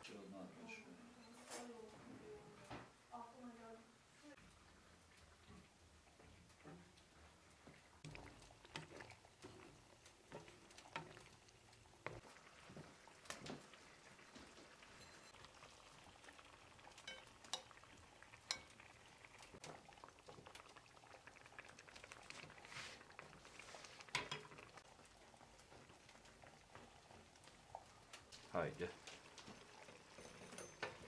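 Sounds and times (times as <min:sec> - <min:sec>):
tomato mixture simmering in a pan: 0:03.8 - 0:31.0
eggs poured into a pan: 0:08.0 - 0:31.0.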